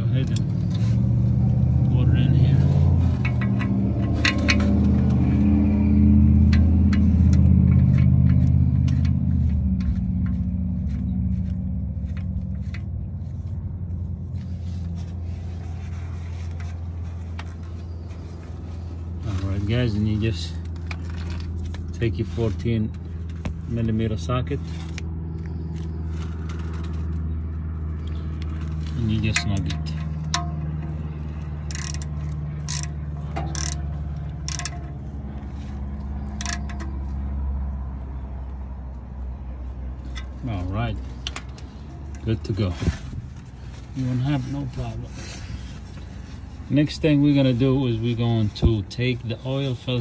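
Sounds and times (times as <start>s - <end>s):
low hum: 0.0s - 44.2s
steady low rumble: 0.0s - 50.0s
socket ratchet clicking: 31.6s - 34.9s, 36.3s - 37.0s.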